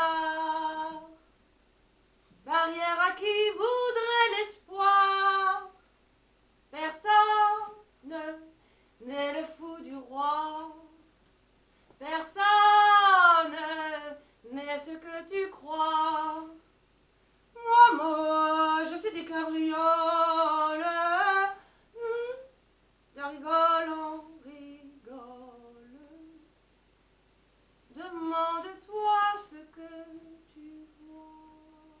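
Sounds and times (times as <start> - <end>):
woman singing unaccompanied: 0.0 - 1.3, 2.4 - 5.8, 6.7 - 11.2, 12.0 - 16.7, 17.5 - 26.5, 27.9 - 32.0.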